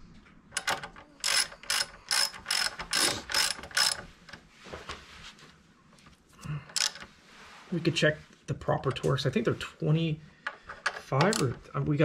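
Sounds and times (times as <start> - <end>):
hand ratchet clicking: 0.6 - 4.0, 6.7 - 7.1, 10.4 - 11.6.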